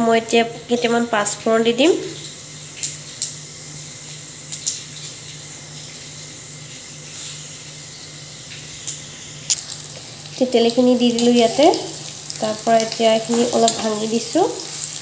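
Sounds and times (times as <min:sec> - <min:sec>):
seeds sizzling in hot oil: 0:05.3 - 0:15.0
sharp pops and crackles: 0:08.8 - 0:10.1.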